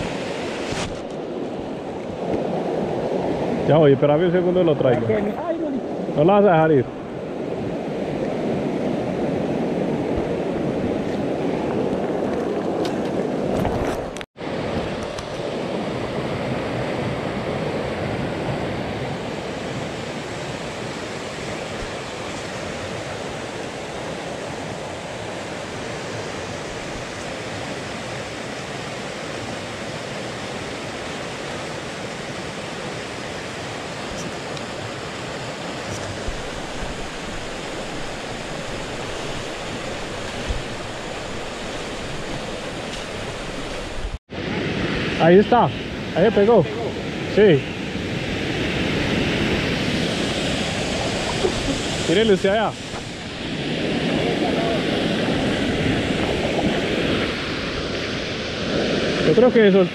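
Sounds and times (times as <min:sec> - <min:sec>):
creek rushing over stones: 0:33.7 - 0:44.2, 0:50.4 - 0:53.4.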